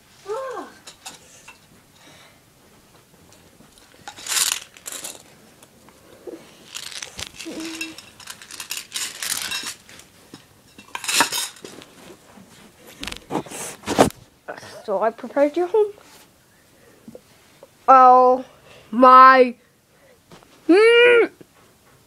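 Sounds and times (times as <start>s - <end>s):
small hard objects clattering: 3.8s - 5.4s, 6.5s - 12.0s.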